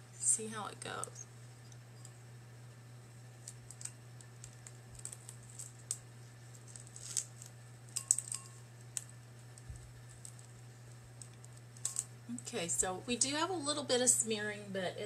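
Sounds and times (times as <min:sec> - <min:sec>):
steady low hum: 0:00.0 - 0:15.0
plastic stencil peeling off: 0:03.4 - 0:07.6.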